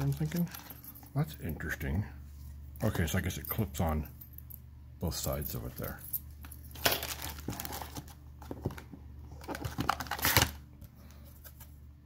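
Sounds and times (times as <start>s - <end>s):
plastic bags crinkling: 0.0s - 0.9s, 6.6s - 10.6s.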